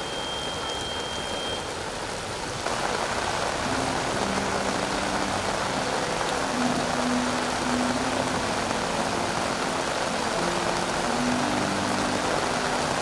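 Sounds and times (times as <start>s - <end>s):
thin high steady tone: 0.0s - 1.7s
rain falling: 0.0s - 13.0s
river rushing in flood: 0.0s - 13.0s.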